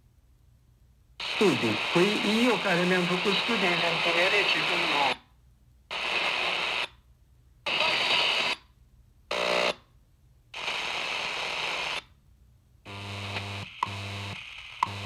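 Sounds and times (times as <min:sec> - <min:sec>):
radio static and garbled station: 0:01.2 - 0:05.2, 0:07.7 - 0:08.5.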